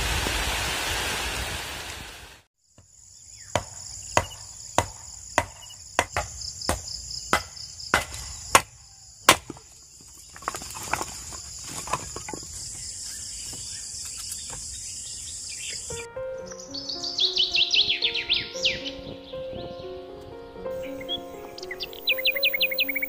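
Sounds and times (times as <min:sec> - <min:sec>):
crickets chirring: 0:02.6 - 0:18.2, 0:20.8 - 0:23.0
axe chopping firewood: 0:03.5 - 0:09.7
wood pieces clattering: 0:10.1 - 0:12.7
music: 0:15.9 - 0:23.0.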